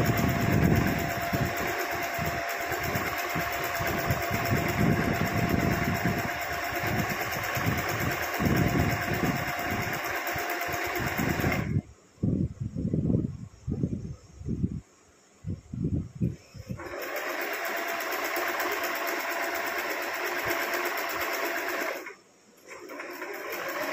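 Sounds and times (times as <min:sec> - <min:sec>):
sewing machine running: 0:00.0 - 0:11.7, 0:16.7 - 0:23.9.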